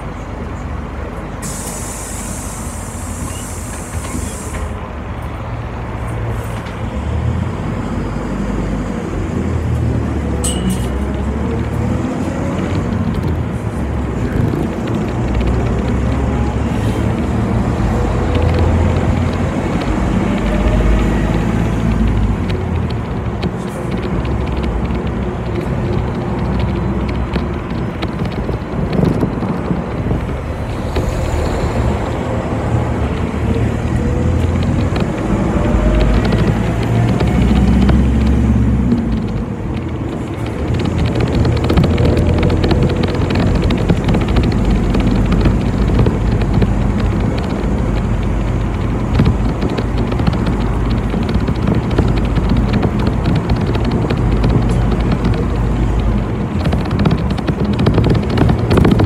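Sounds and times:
bus engine rumbling with whine: 0:00.0 - 0:59.0
compressed air hiss: 0:01.4 - 0:04.7.

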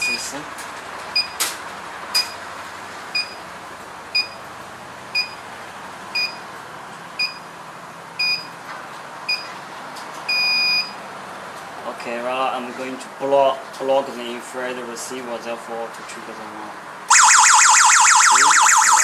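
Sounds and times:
alarm panel beeping: 0:17.1 - 0:19.0.

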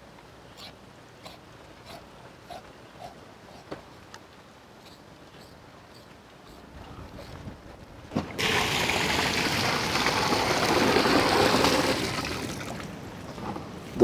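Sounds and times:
water gushing into metal basin: 0:08.4 - 0:12.8.

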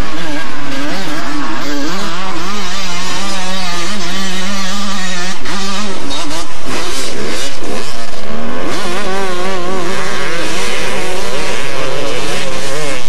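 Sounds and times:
two-stroke motorbike engine: 0:00.0 - 0:13.0.

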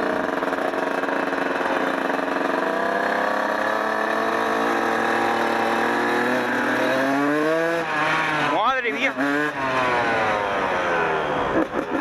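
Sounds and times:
two-stroke dirt bike engine: 0:00.0 - 0:12.0.

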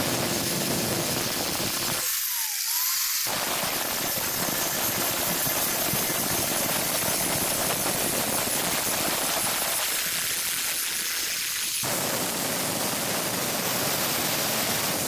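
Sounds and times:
angle grinder grinding steel: 0:01.9 - 0:06.5.

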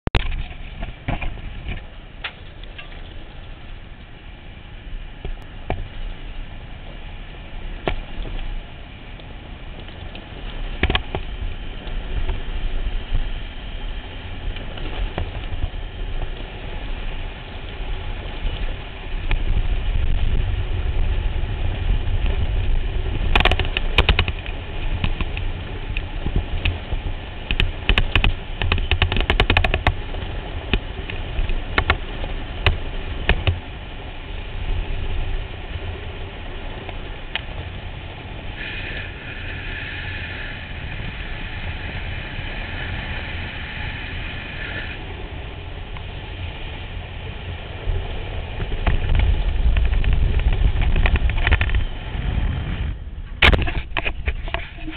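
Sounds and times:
tyre and road rumble: 0:00.0 - 0:54.9
wind buffeting microphone: 0:00.1 - 0:54.9
sharp clicks and knocks: 0:09.8 - 0:12.4, 0:23.3 - 0:26.8, 0:27.4 - 0:30.0, 0:30.7 - 0:33.6, 0:48.6 - 0:51.8, 0:53.4 - 0:54.7.

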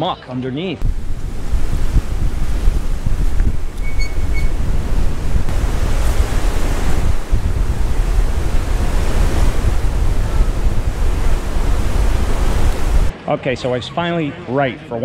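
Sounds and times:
wind buffeting microphone: 0:00.8 - 0:13.1
surf breaking around pilings: 0:04.6 - 0:13.1.

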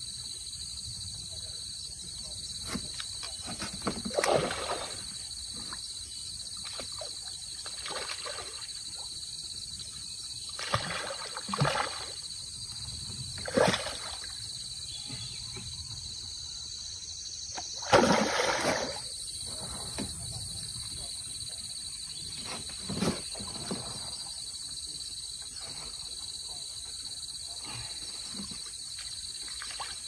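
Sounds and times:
fish splashing at water surface: 0:10.6 - 0:12.2, 0:17.8 - 0:19.1.

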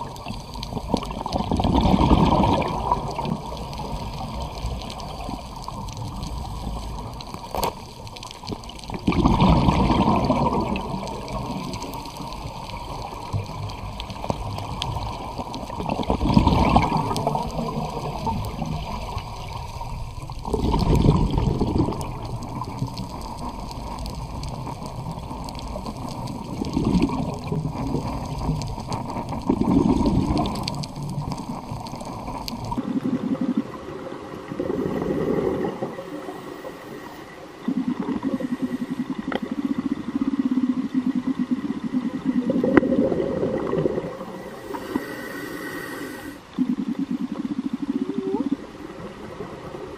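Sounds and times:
underwater water noise: 0:00.0 - 0:49.9
diver's exhaled bubbles rushing: 0:00.8 - 0:05.5, 0:08.9 - 0:12.6, 0:13.8 - 0:23.2, 0:25.7 - 0:31.5, 0:32.2 - 0:36.3, 0:37.6 - 0:44.5.

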